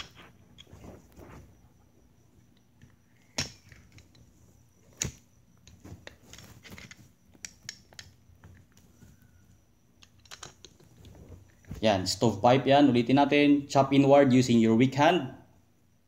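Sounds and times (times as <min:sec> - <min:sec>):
pistol slide clicks and rattles: 0:10.0 - 0:10.8.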